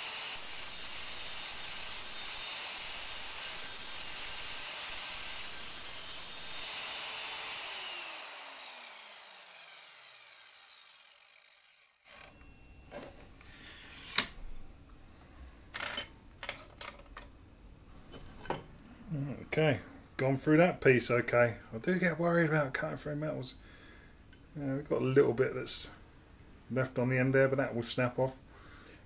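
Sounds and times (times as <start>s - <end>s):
mitre saw running: 0.0s - 12.4s
mitre saw blade spinning down: 0.0s - 12.6s.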